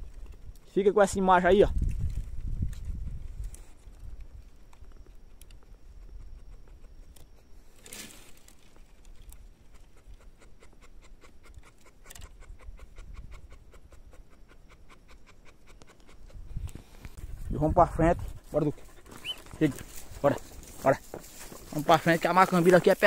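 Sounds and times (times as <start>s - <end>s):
brief rustle: 7.8s - 9.4s
faint quick panting: 9.7s - 20.4s.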